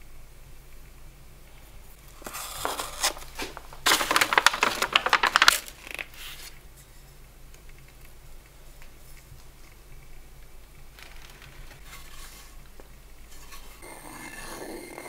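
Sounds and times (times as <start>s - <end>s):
stiff paper crinkling: 2.0s - 6.6s.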